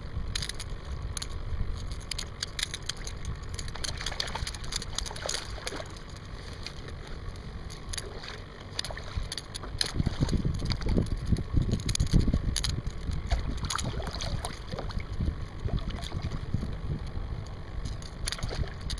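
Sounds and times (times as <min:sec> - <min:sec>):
water splashing and lapping: 0:01.2 - 0:18.9
wind on microphone: 0:07.5 - 0:18.9.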